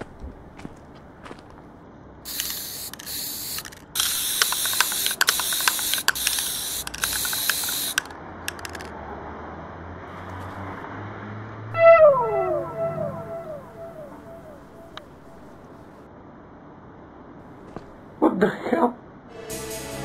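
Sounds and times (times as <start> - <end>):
aerosol spray can hissing: 2.3 - 8.9
spray can clicks: 2.3 - 8.9.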